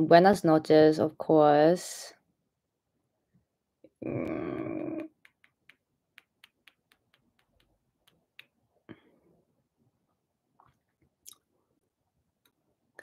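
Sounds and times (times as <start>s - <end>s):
fingernail taps on phone screen: 5.0s - 8.6s.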